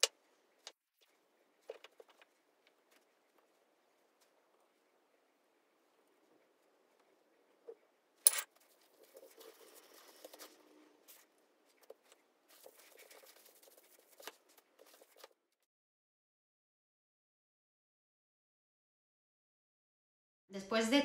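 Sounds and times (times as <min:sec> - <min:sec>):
bamboo mat rustling and clicking: 0:00.0 - 0:04.9.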